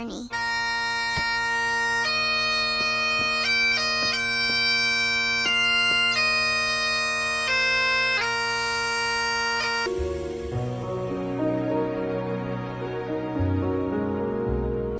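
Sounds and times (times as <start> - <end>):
bagpipe playing slow lament: 0.3 - 11.5.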